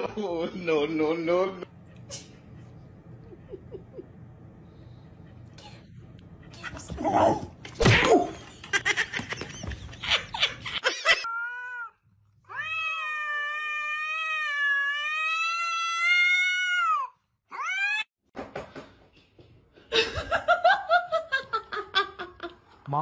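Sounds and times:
cat yowling: 11.2 - 18.1.

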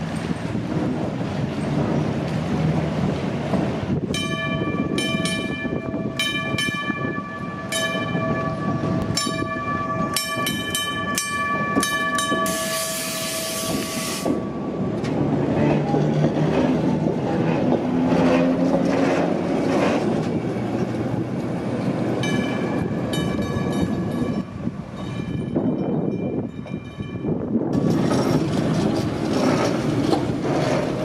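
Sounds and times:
streetcar running past: 0.0 - 31.0
streetcar gong ringing: 4.0 - 18.2, 22.1 - 27.6.

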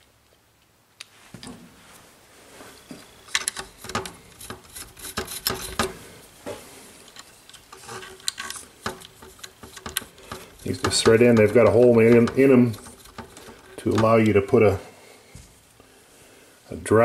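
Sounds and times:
small metal parts clicking and scraping: 3.0 - 6.0, 7.0 - 14.8.

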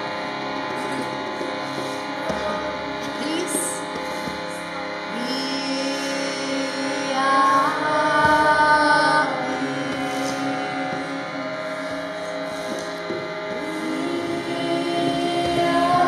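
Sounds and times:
harmonium drone: 0.0 - 16.0
woman singing high note: 5.1 - 11.3, 13.7 - 16.0
voices chanting: 5.1 - 16.0.

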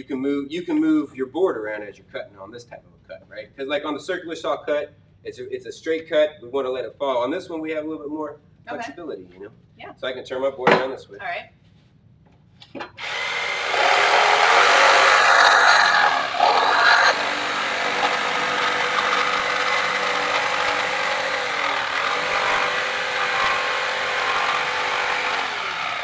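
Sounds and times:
jigsaw cutting wood: 13.0 - 26.0.

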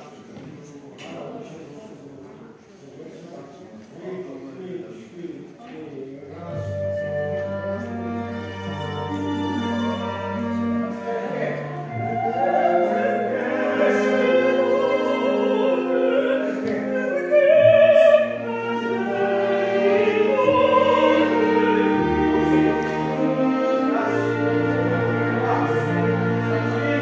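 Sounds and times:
string orchestra sustained notes: 6.3 - 27.0
woman singing operatically: 12.1 - 19.1.

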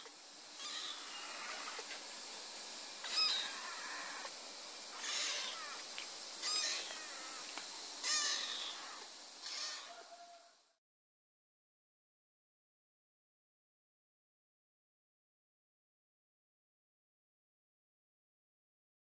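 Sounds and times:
kitten meowing: 0.6 - 1.7, 3.0 - 4.3, 5.0 - 5.8, 6.4 - 7.4, 8.0 - 10.0.

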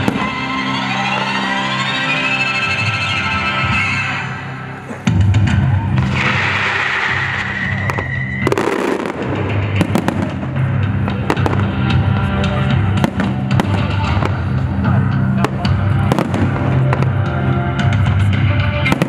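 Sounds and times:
fireworks bursting: 0.0 - 1.9, 5.9 - 19.0
loud music with low bass: 0.0 - 19.0.

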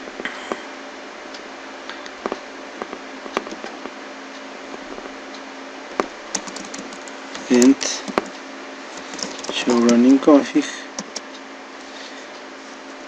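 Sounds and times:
steady background hiss: 0.0 - 13.0
mouse and keyboard clicks: 6.0 - 8.4, 9.0 - 10.0, 11.0 - 11.3.

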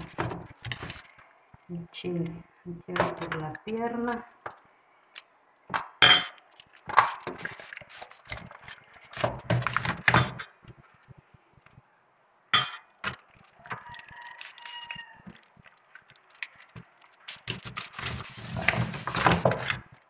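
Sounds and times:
foil pan crinkling: 0.0 - 1.2, 6.5 - 10.4, 13.0 - 20.0
hands slapping and rubbing chicken: 6.5 - 11.2.

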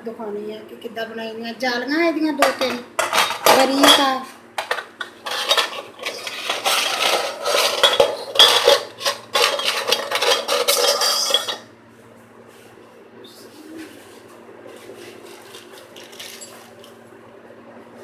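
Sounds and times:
metal parts clinking against steel bowl: 2.5 - 11.6, 16.0 - 16.7.

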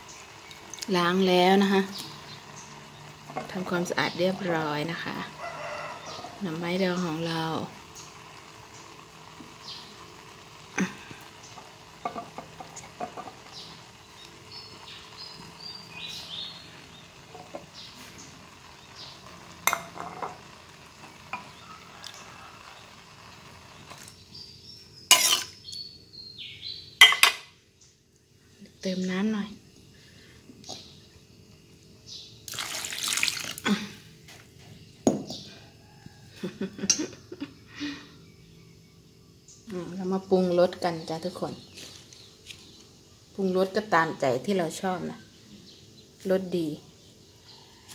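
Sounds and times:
water pouring and splashing into pot: 0.0 - 24.2, 32.4 - 34.0
bamboo shoots rustling: 41.6 - 42.9.

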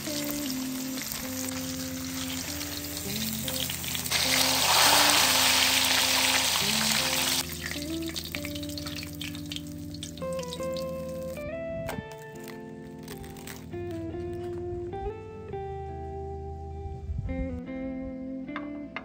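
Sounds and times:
food sizzling in hot oil: 0.0 - 11.4
soft background music: 0.0 - 19.0.

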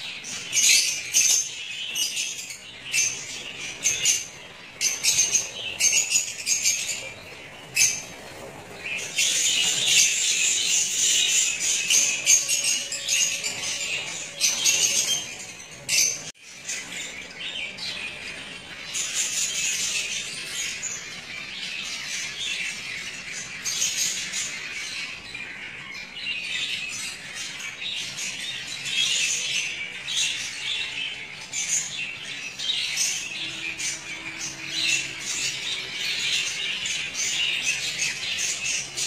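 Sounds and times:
parrots chattering and squawking: 0.0 - 39.0.

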